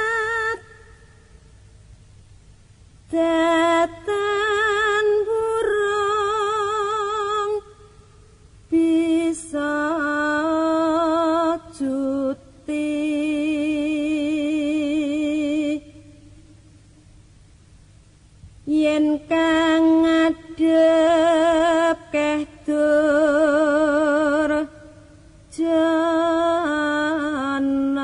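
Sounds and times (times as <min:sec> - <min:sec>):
person singing long held notes: 0:00.0 - 0:01.3, 0:03.1 - 0:07.9, 0:08.7 - 0:16.4, 0:18.6 - 0:28.0.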